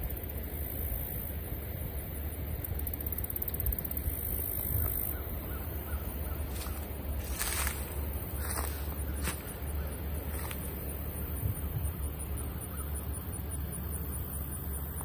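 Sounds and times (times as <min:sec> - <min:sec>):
wind rumble on microphone: 0:03.6 - 0:07.7, 0:11.2 - 0:12.2
crows cawing faintly: 0:04.8 - 0:07.6, 0:08.4 - 0:10.7, 0:12.6 - 0:13.0.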